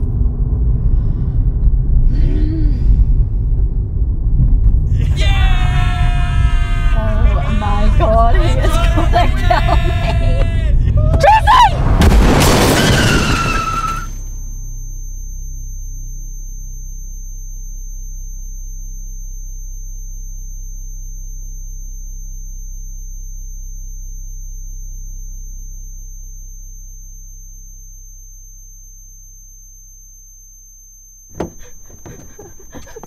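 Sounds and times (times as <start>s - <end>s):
faint high whine: 13.6s - 33.0s.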